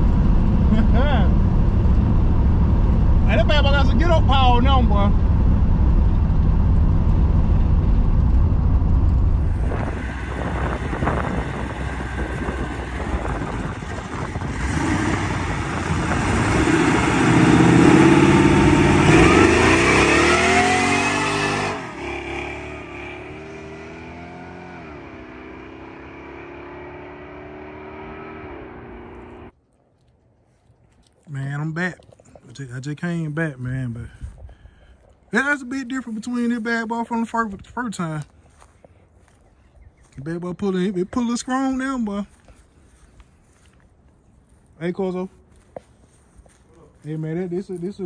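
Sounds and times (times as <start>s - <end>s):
car engine revving: 0.0s - 29.5s.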